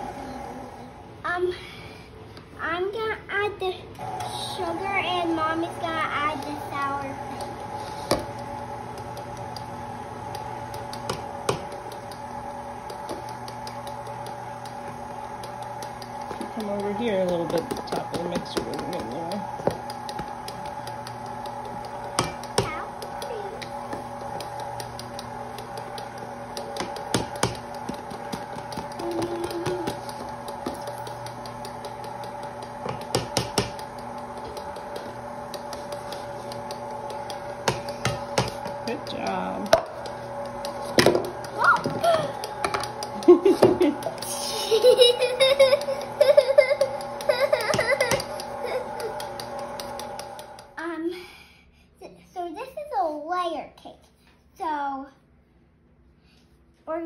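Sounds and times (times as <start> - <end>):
stand mixer humming: 0.0 - 1.2, 4.0 - 50.8
beater ticking in metal bowl: 15.4 - 38.7, 45.4 - 50.7.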